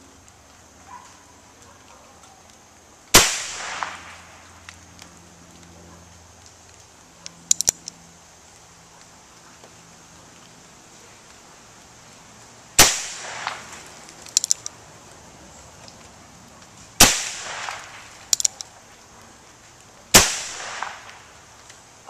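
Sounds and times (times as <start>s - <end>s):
cluster of clicks: 0.1s - 2.9s, 3.6s - 10.6s, 12.2s - 22.0s
revolver gunshots: 3.1s - 4.3s, 12.8s - 13.8s, 17.0s - 18.6s, 20.1s - 21.3s.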